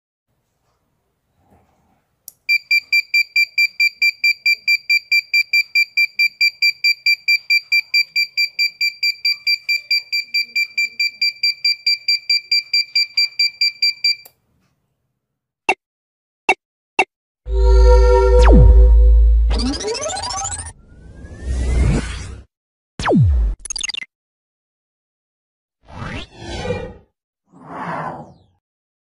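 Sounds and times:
alarm buzzer beeping rapidly: 17.5s - 20.7s.

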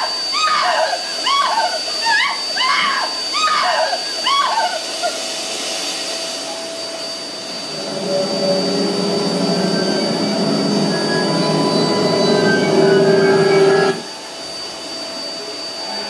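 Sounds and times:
rushing hissing noise: 0.0s - 16.0s
thin high steady tone: 0.0s - 16.0s
low droning hum: 5.1s - 16.0s.

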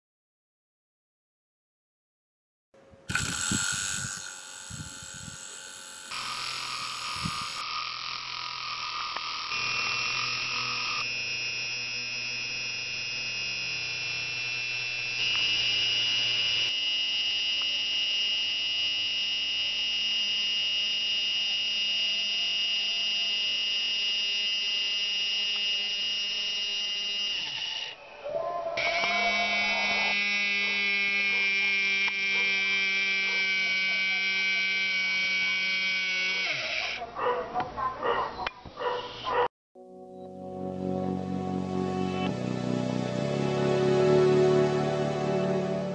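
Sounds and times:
electric motor whine and buzz: 3.0s - 28.0s, 28.8s - 37.0s.

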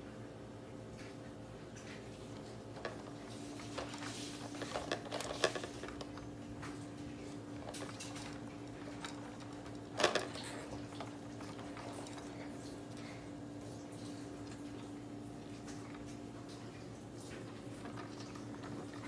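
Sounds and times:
plastic toys clicking and knocking: 2.7s - 6.8s, 7.5s - 12.5s.

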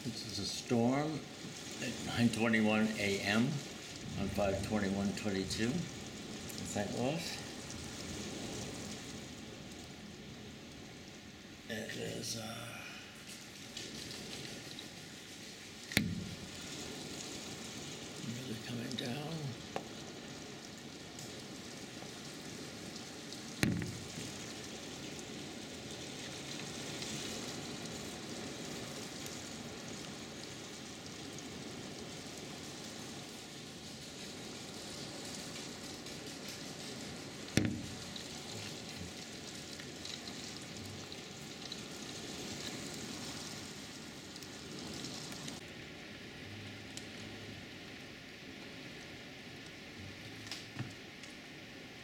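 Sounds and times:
heavy rain on wooden deck: 0.0s - 52.0s
sharp knocks: 16.0s - 16.4s, 23.6s - 24.2s, 37.6s - 37.9s.

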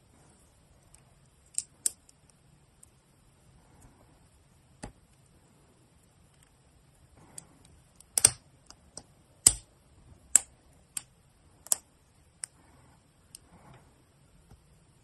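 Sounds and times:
plastic parts snapping together: 8.0s - 8.4s.

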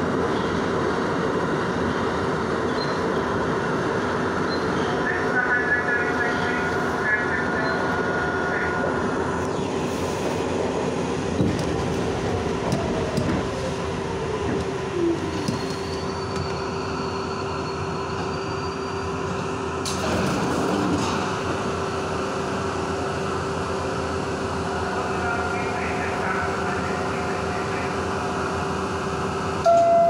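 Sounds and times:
wheels rumbling on rail: 0.0s - 30.0s
clacks over rail joints: 11.4s - 13.6s.

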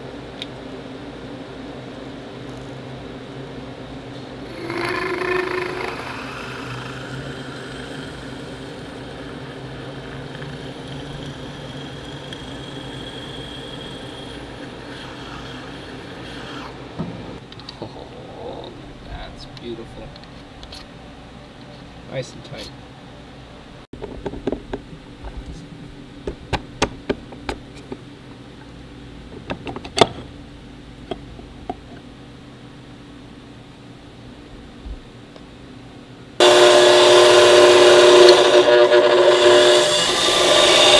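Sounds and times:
steady low hum: 0.0s - 40.9s
thin high whine: 4.1s - 22.7s, 36.4s - 40.9s
milling machine spindle running: 4.5s - 17.0s, 36.4s - 40.9s
reamer cutting metal: 4.5s - 17.0s, 36.4s - 40.9s.

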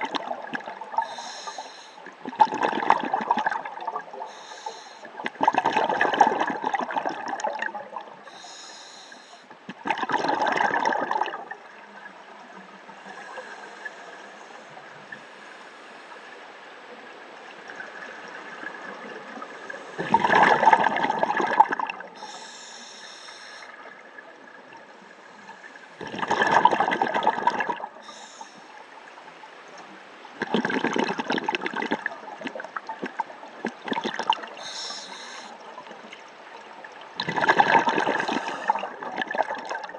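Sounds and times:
diver exhaling bubbles underwater: 2.2s - 4.2s, 5.2s - 8.1s, 9.8s - 11.5s, 20.0s - 22.1s, 26.0s - 28.0s, 30.4s - 35.0s, 37.2s - 39.9s.

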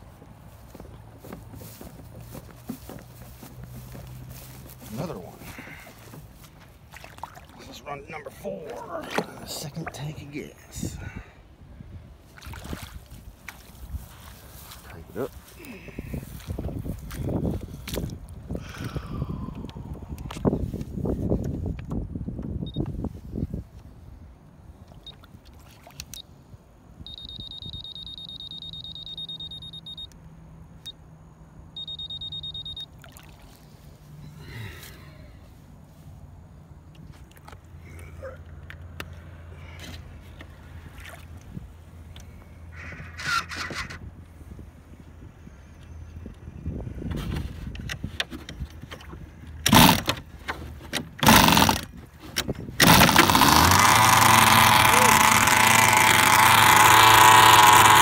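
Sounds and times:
radio transmitter high beeps: 27.1s - 30.1s, 31.8s - 32.9s
two-stroke engine cranking: 42.7s - 44.0s, 49.6s - 50.3s, 51.0s - 58.0s.

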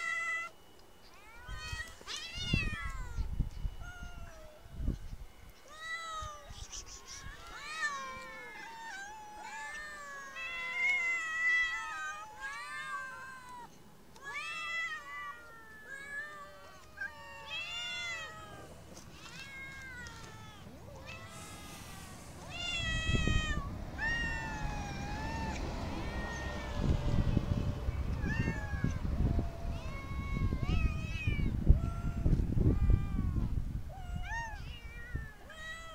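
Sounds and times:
cats meowing: 0.0s - 4.6s, 5.6s - 35.9s
low rumbling noise: 20.7s - 33.9s.

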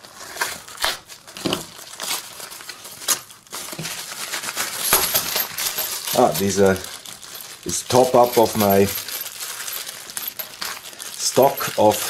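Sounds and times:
plastic bags crinkling: 0.0s - 12.0s
small metal connectors clinking: 3.1s - 12.0s.

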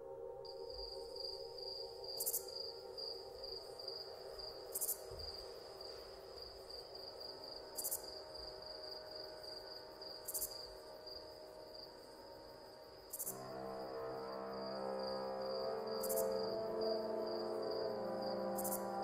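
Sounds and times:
low sustained drone: 10.6s - 19.0s.

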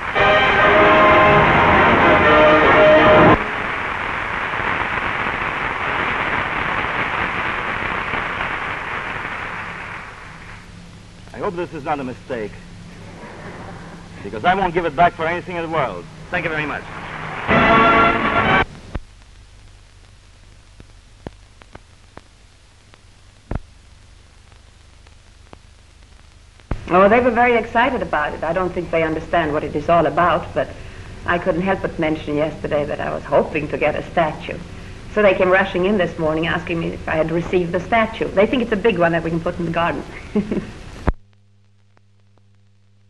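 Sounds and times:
low hum and hiss: 0.0s - 43.0s
audience applauding: 16.4s - 18.6s
clicks and pops: 18.7s - 23.7s.

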